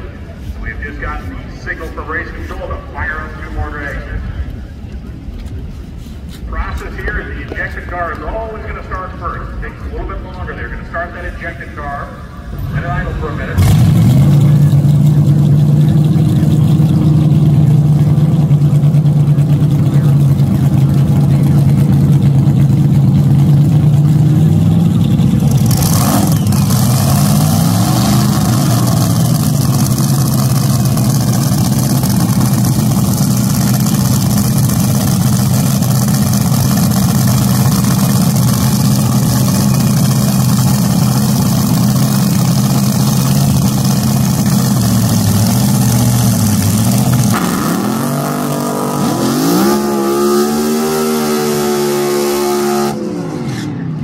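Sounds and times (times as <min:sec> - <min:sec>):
dragster engine idling: 0:12.4 - 0:48.2
engine revving: 0:12.6 - 0:54.0.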